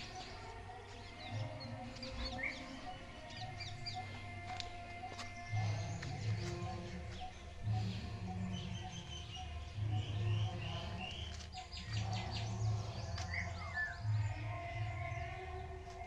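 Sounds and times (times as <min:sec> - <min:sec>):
faint background music: 0:00.0 - 0:16.0
small birds chirping: 0:00.0 - 0:16.0.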